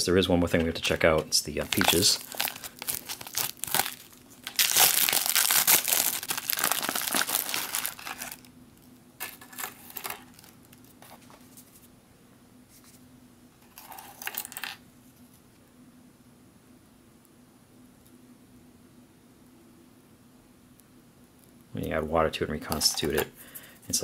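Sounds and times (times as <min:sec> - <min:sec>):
foil pouch crinkling: 0:01.6 - 0:08.5, 0:09.2 - 0:11.2.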